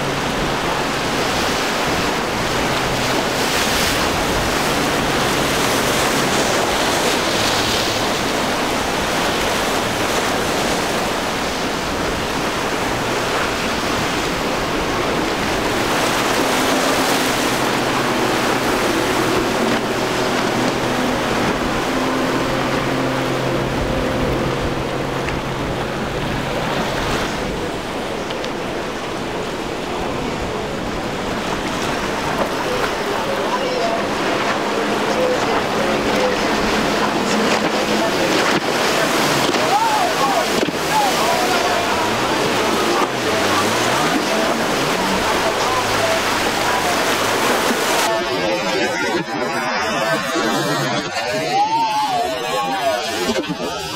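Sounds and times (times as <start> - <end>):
outboard motor droning: 0.0 - 53.9
waves breaking: 0.0 - 53.9.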